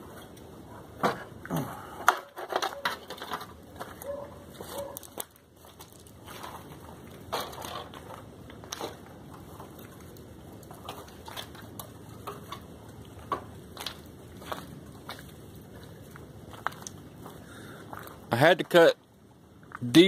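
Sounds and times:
footsteps crunching on gravel: 3.7s - 18.9s.

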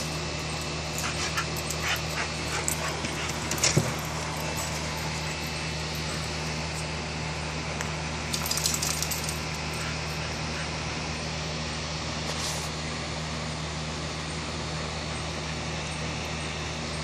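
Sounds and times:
low mechanical hum: 0.0s - 17.0s
light metallic jingling: 0.9s - 6.5s, 8.3s - 10.4s.

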